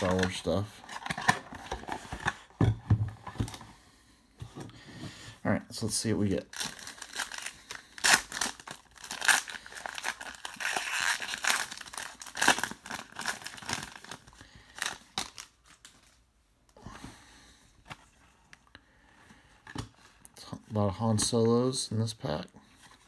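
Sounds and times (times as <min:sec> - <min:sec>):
foil wrapper crinkling and tearing: 0:00.0 - 0:01.5, 0:06.4 - 0:16.0.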